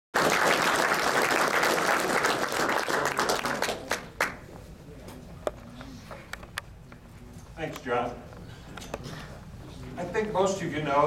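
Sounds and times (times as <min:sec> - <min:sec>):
audience applauding: 0:00.2 - 0:04.4.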